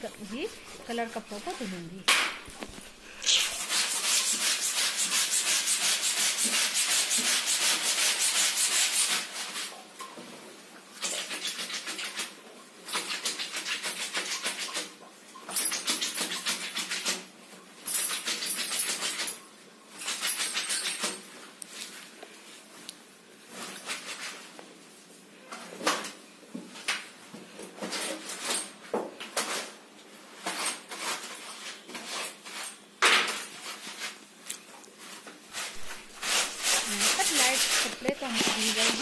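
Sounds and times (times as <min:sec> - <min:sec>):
wet shirt scrubbed by hand: 0:00.0 - 0:09.8, 0:35.1 - 0:39.0.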